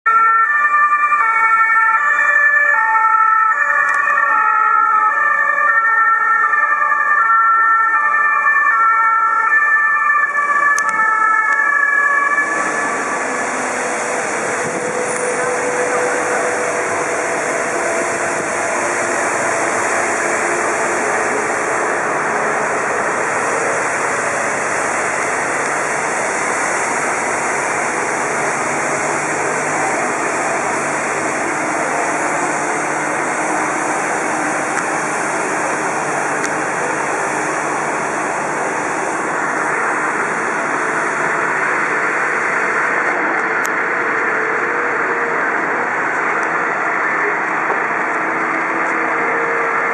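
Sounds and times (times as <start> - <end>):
fire engines idling: 0.1 - 49.9
passing street traffic: 0.1 - 49.9.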